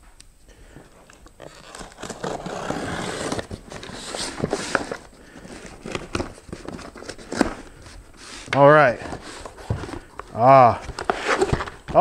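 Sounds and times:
cardboard flaps rustling: 1.1s - 12.0s
packing tape ripping: 1.2s - 5.0s.

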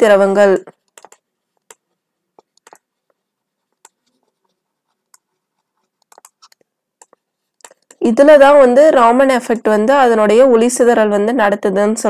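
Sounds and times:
stylus tapping on tablet screen: 0.6s - 8.0s.

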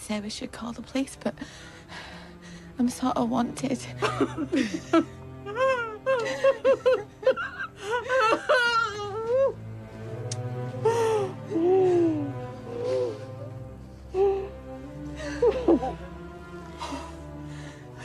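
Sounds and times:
low music drone: 0.0s - 18.0s
women laughing and sobbing: 3.9s - 9.7s, 11.2s - 17.4s.

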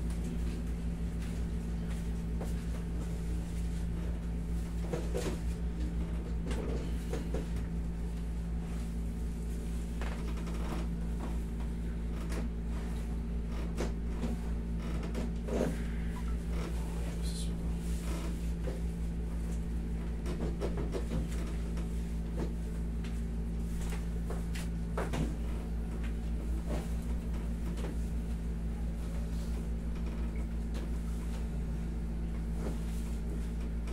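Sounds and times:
air conditioner humming: 0.0s - 33.9s
massage table creaks and rustles: 0.0s - 33.9s.

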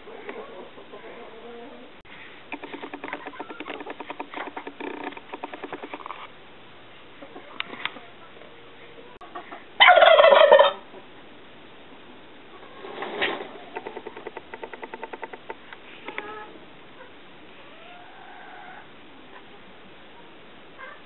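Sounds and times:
turkey gobbling: 2.6s - 6.0s, 9.2s - 11.0s.

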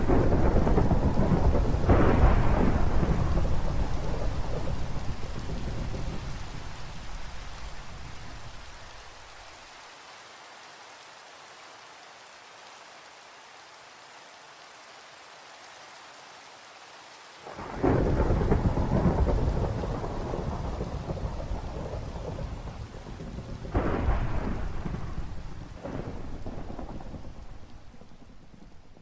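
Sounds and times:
thunder rumbling: 0.0s - 8.8s, 17.5s - 29.0s
light rain: 0.0s - 29.0s.

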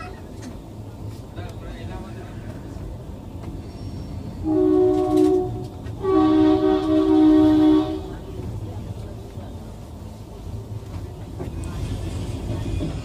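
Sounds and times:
low rumble of train running: 0.0s - 13.0s
train horn blasts: 4.4s - 8.2s.

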